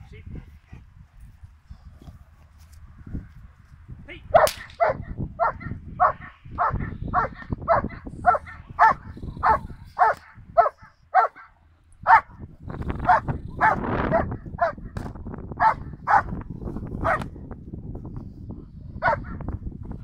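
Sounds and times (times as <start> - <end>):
dog barking: 4.4 - 12.3, 13.0 - 15.0, 15.6 - 16.3, 17.0 - 17.2, 19.0 - 19.4.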